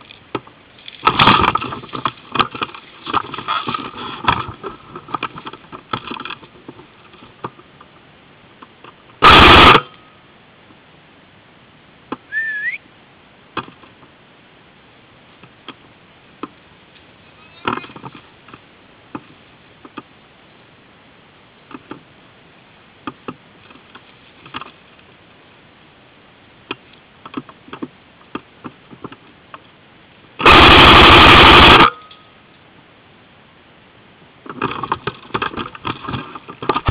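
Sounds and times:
clicks and rustles in grass: 0.0 - 9.2, 23.0 - 25.6, 34.4 - 36.9
airsoft rifle bursts: 9.2 - 9.9, 30.4 - 32.1.

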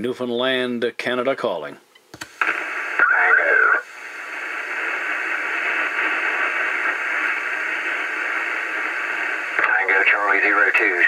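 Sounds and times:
radio static hiss: 2.2 - 11.0.

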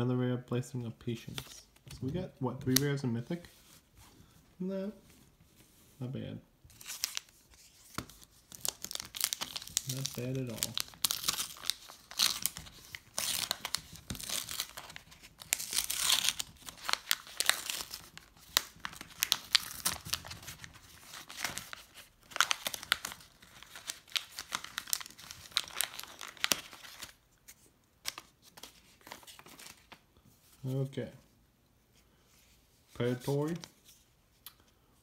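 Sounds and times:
foil wrapper tearing and crinkling: 8.1 - 27.2.

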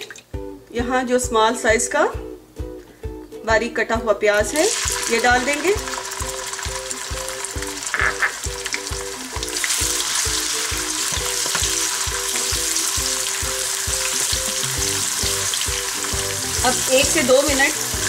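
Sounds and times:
background music with steady beat: 0.0 - 18.0
onion sizzling in hot oil: 4.5 - 18.0.

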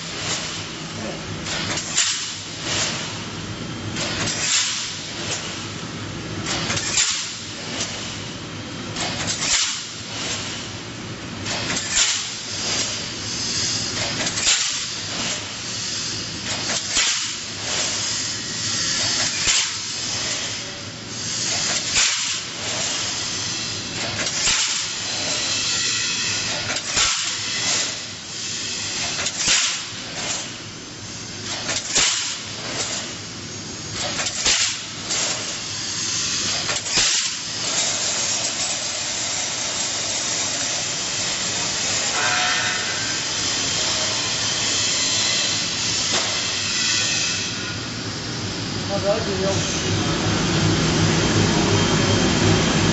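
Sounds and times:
welding machine hissing bursts: 4.0 - 5.6, 11.5 - 33.4, 34.0 - 47.7
machine running: 31.3 - 52.9.

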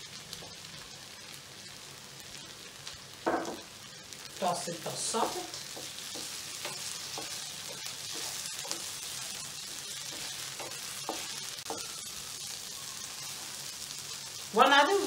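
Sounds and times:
food sizzling in oil: 0.0 - 15.0
spatula scraping pan: 5.2 - 11.8.

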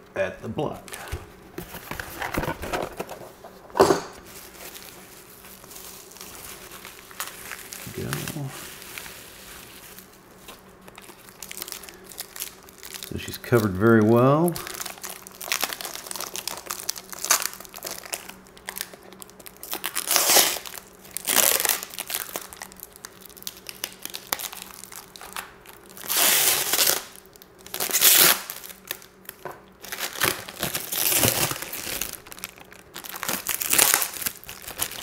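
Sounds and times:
plastic wrap crinkling: 0.8 - 35.0.

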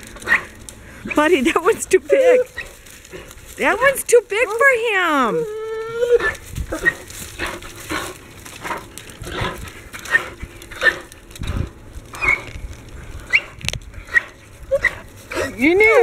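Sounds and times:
branch snapping: 0.0 - 1.2, 5.4 - 16.0
wood crunching and crackling: 0.0 - 16.0.

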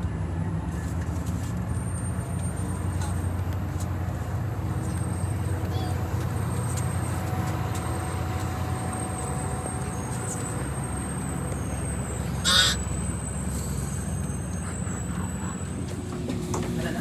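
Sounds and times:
low engine rumble: 0.0 - 17.0.

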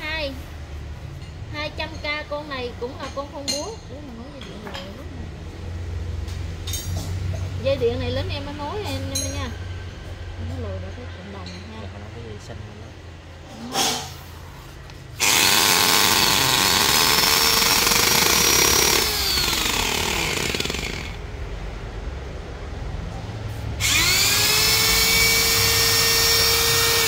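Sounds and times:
drill motor whine: 15.2 - 21.2, 23.8 - 27.0.

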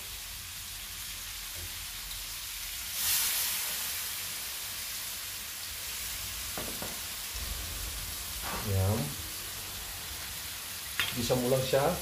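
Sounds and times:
food sizzling in a pan: 0.0 - 12.0
water hitting hot pan: 6.2 - 11.8.

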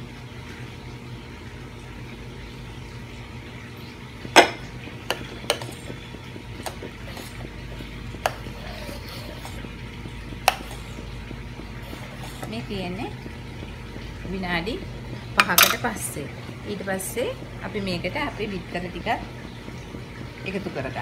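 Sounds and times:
steady low hum: 0.0 - 21.0
ladle stirring sauce in a saucepan: 4.6 - 14.2
pot lid clanking: 15.4 - 15.9.

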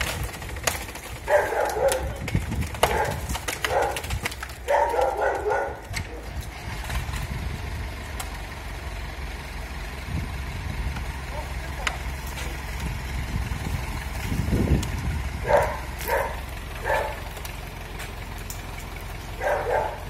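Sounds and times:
dog barking: 1.3 - 2.2, 2.8 - 6.2, 11.3 - 12.0, 15.4 - 17.2, 19.4 - 20.0
steady low rumble: 5.4 - 20.0.

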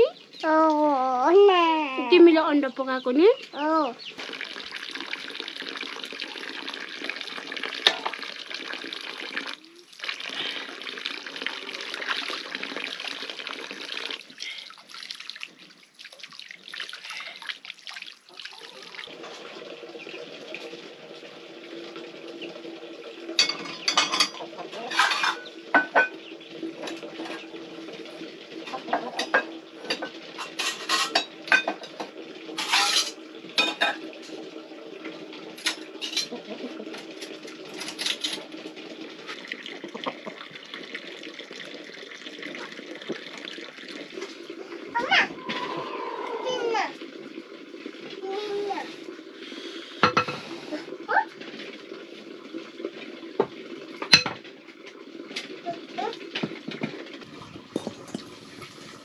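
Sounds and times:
water running into steel basin: 0.0 - 59.0
steel pots and dishes clattering: 23.3 - 27.6, 28.5 - 34.4, 35.6 - 38.6, 50.0 - 50.5, 53.5 - 55.5, 56.3 - 58.9.

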